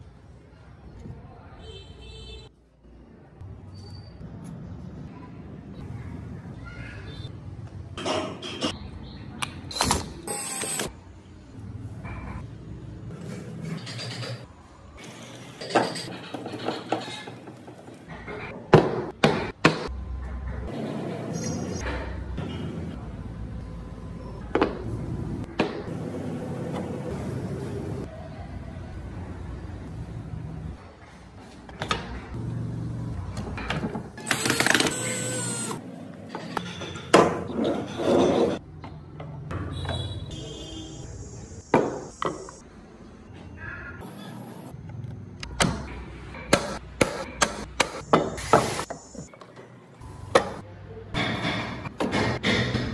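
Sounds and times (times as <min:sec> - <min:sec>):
cordless drill whirring: 0:34.2 - 0:35.8.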